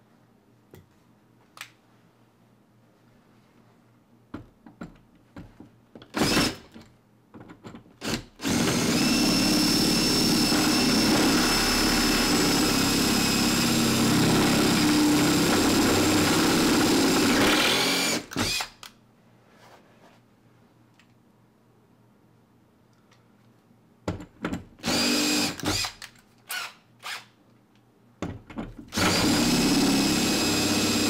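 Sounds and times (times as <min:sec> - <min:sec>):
power drill whining: 0:06.2 - 0:06.6, 0:08.0 - 0:18.7, 0:24.8 - 0:27.2, 0:28.9 - 0:31.0.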